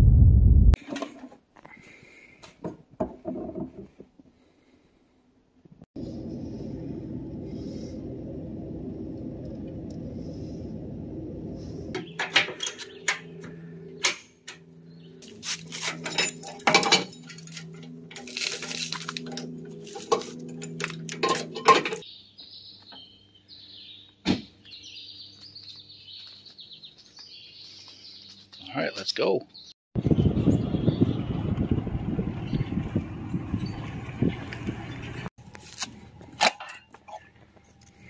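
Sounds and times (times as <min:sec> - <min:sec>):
vehicle engine idling: 0:06.0 - 0:16.6
birds chirping: 0:11.6 - 0:15.4, 0:19.1 - 0:31.8, 0:32.4 - 0:35.2.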